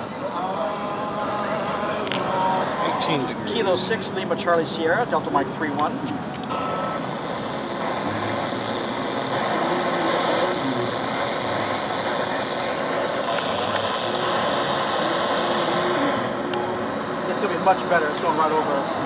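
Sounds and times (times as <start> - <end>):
radio static hiss: 2.6 - 19.0.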